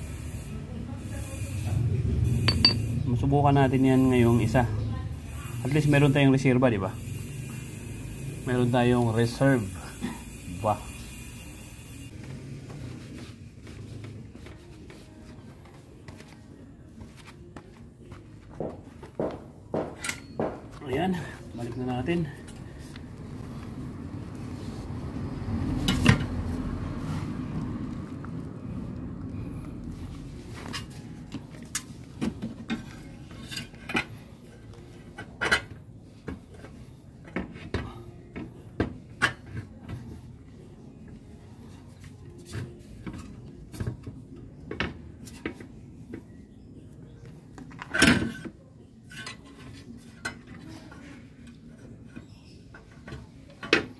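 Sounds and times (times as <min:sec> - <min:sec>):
metallic clinks and knocks: 0:02.5 - 0:02.8.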